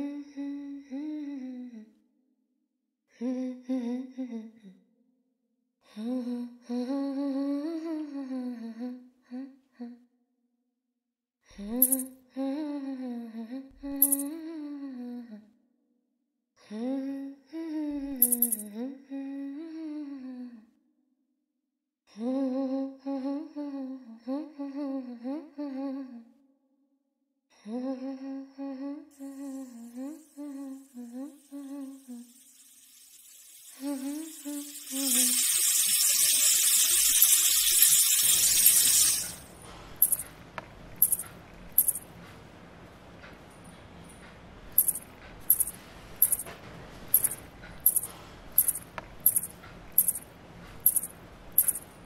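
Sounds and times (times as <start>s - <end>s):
loud steady hiss: 33.6s - 40.2s.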